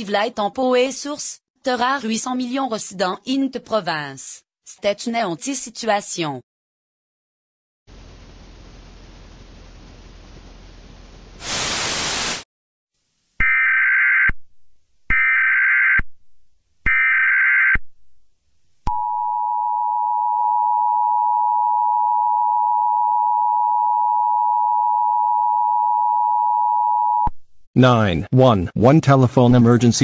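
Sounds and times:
faint hiss: 7.9s - 12.4s
loud static: 11.4s - 12.4s.

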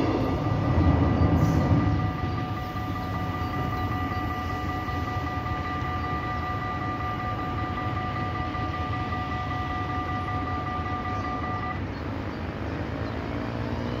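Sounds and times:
level-crossing bells ringing: 0.0s - 11.8s
road traffic rumble: 0.0s - 14.0s
car engine revving: 12.5s - 14.0s.

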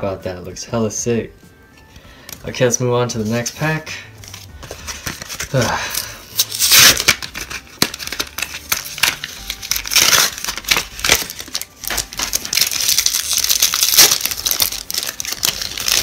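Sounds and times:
foil wrapper crinkling: 4.2s - 16.0s.

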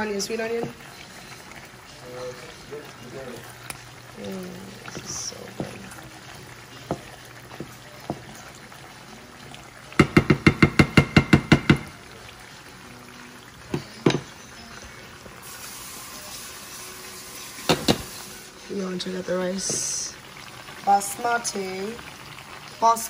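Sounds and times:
faint oil sizzle: 0.0s - 23.0s
wooden spoon stirring sauce: 0.6s - 9.0s.

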